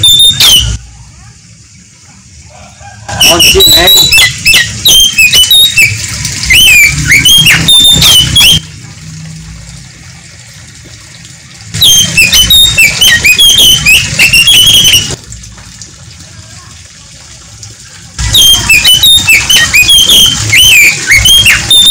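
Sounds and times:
songbird whistling and chirping: 0:00.0 - 0:00.8, 0:03.2 - 0:08.6, 0:11.8 - 0:15.2, 0:18.3 - 0:21.9.

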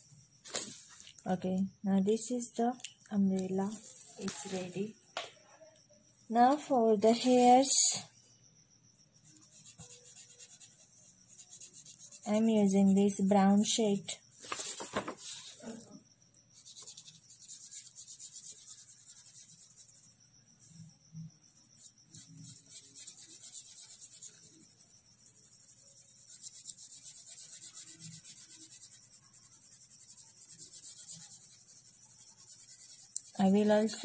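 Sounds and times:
felt-tip pen scribbling on paper: 0:09.3 - 0:15.7, 0:16.6 - 0:20.2, 0:21.6 - 0:34.0.

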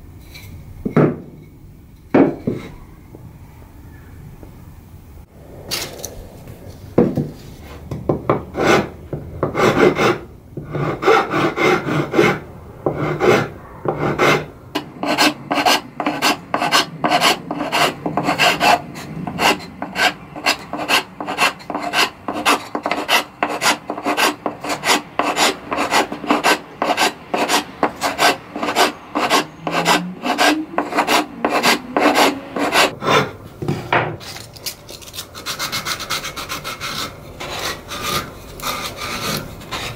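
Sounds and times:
hand file rasping on wood: 0:09.6 - 0:33.3.

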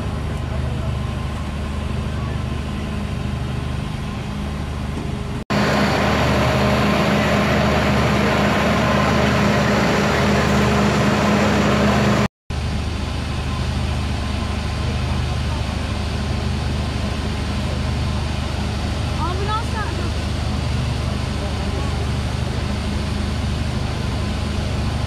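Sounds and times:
fire truck engine idling: 0:00.0 - 0:12.3.

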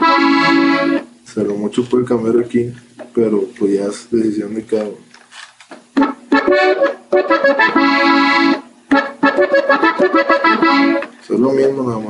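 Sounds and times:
accordion melody: 0:00.0 - 0:01.2, 0:05.9 - 0:11.2.

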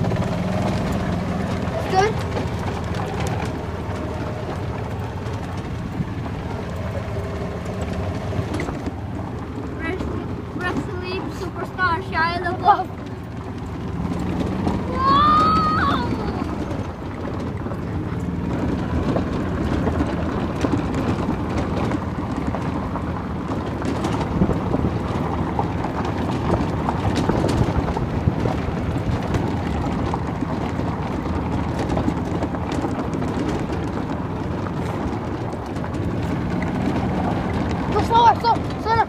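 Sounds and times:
tyres crunching on gravel: 0:00.0 - 0:39.0
wind noise on microphone: 0:13.9 - 0:38.8.

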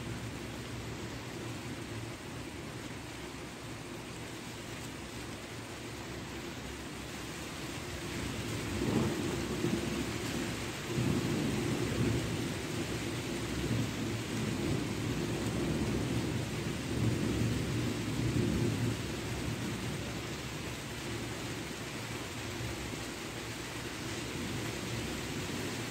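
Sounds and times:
rain hissing: 0:00.0 - 0:25.9
thunder rumbling: 0:08.7 - 0:10.1.

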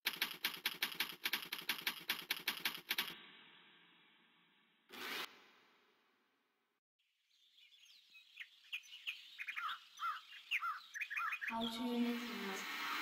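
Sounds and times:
songbirds chirping: 0:07.0 - 0:12.7.

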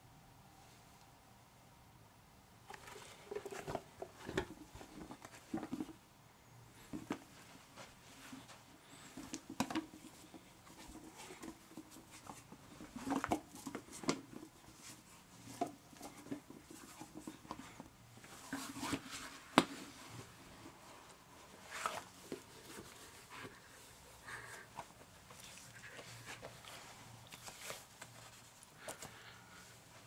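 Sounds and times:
hands rubbing silicone mask: 0:06.8 - 0:30.0.

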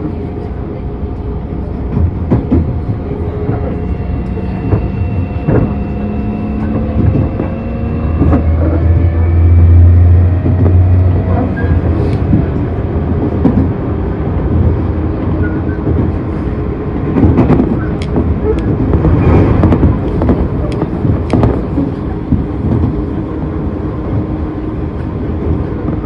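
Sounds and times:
train rumble: 0:00.0 - 0:26.0
train motor whine: 0:03.0 - 0:12.7.

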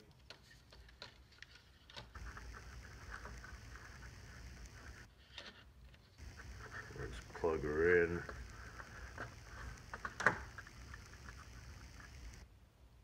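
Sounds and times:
faint clicks: 0:01.9 - 0:05.1, 0:06.2 - 0:12.4.

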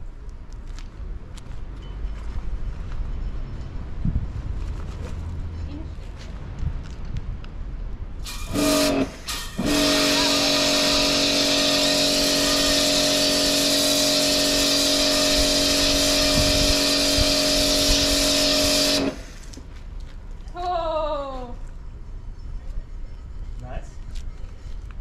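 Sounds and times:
water and sand jet hissing: 0:08.2 - 0:19.5
pump humming: 0:08.2 - 0:19.6.

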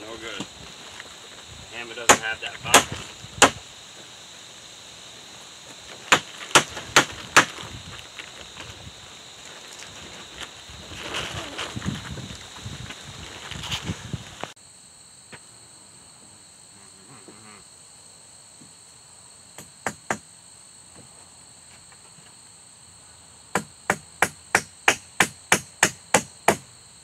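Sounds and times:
insects chirring: 0:00.0 - 0:27.0
hammer blows on log wall: 0:02.0 - 0:03.6, 0:19.6 - 0:20.3, 0:23.5 - 0:26.7.

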